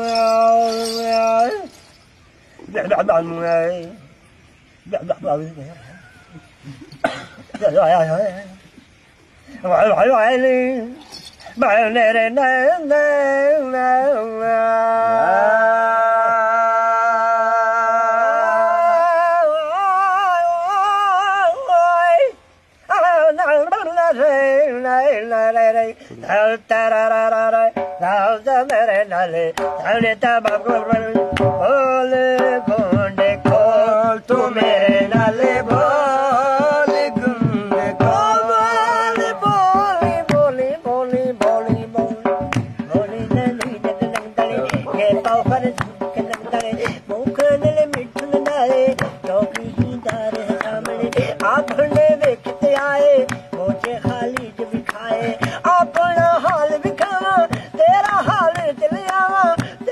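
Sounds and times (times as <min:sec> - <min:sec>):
quick drum beats: 0:27.5 - 0:59.9.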